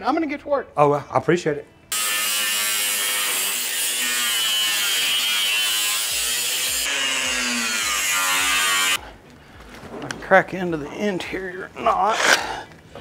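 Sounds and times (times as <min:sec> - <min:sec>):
angle grinder cutting steel: 0:01.9 - 0:09.0.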